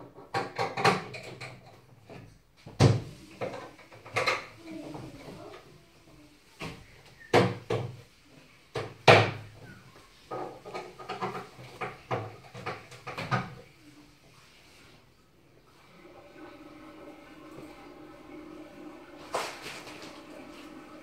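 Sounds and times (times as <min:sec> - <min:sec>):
bed panels knocking and clattering: 0:00.0 - 0:04.5, 0:10.3 - 0:13.6.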